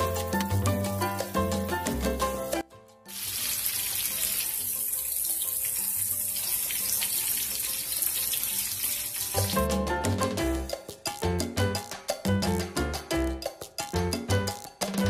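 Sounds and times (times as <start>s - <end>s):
vegetables sizzling in oil: 0.0s - 9.6s.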